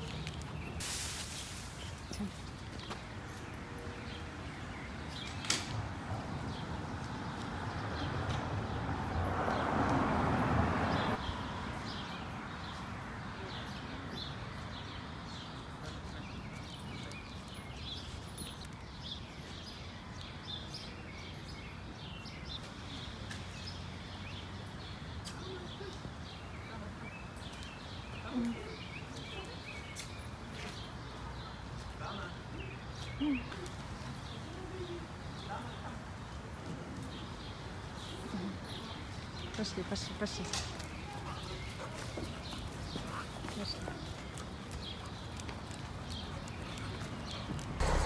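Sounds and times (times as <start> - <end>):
birds chirping: 0.0 - 48.0
outdoor background noise: 0.0 - 48.0
rush of noise: 47.8 - 48.0.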